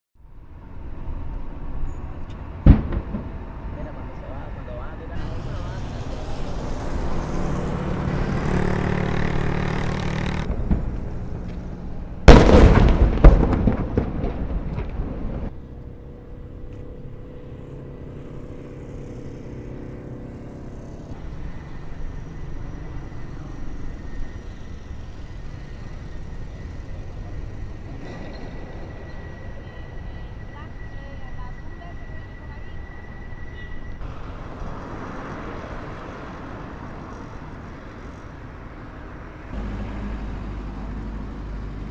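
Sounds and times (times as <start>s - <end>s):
cannon boom echoing: 2.6s - 3.4s, 12.2s - 15.5s.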